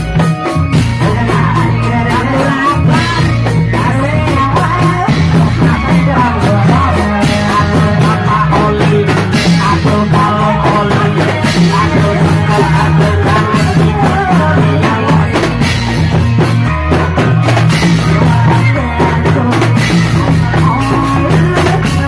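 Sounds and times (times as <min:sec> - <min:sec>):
drums beating fast rhythm: 0:00.0 - 0:22.0
low bass line: 0:00.0 - 0:22.0.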